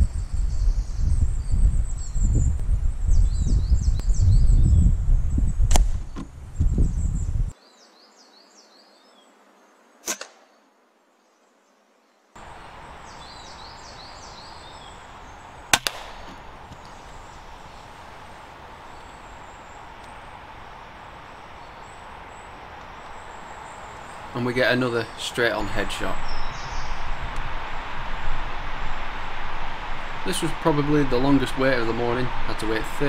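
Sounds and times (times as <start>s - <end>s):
small birds chirping: 0.0s - 9.8s, 12.4s - 33.0s
air rifle shots: 15.7s - 16.5s.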